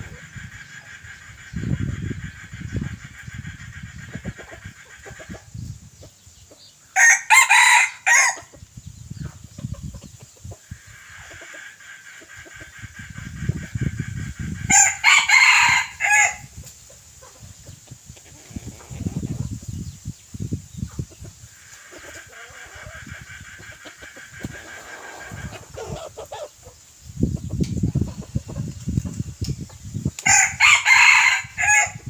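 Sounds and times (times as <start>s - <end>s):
distant rooster crowing: 7.0s - 8.5s, 14.7s - 16.5s, 30.2s - 32.0s
rooster crowing: 7.0s - 8.5s, 14.7s - 16.5s, 30.2s - 32.0s.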